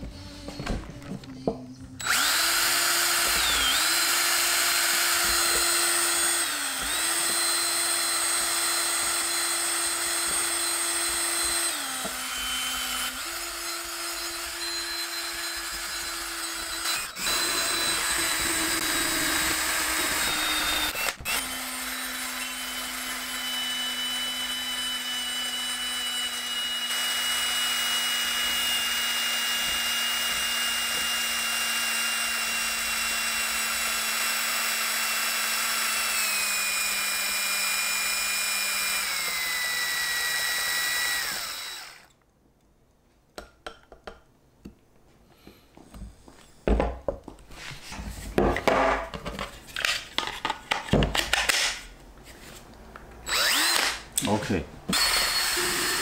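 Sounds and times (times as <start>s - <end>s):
power drill motor running: 2.0s - 42.1s, 53.2s - 54.1s, 54.9s - 56.0s.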